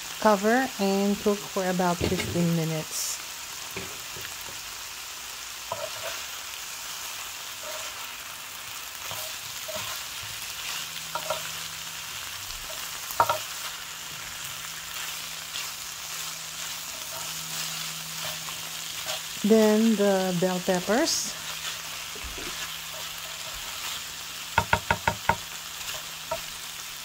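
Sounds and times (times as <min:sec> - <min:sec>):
food sizzling in a skillet: 0:00.0 - 0:27.0
spatula scraping and knocking pan: 0:01.9 - 0:02.6, 0:03.7 - 0:04.6, 0:05.7 - 0:06.3, 0:09.0 - 0:11.6, 0:12.6 - 0:19.5, 0:21.4 - 0:26.7.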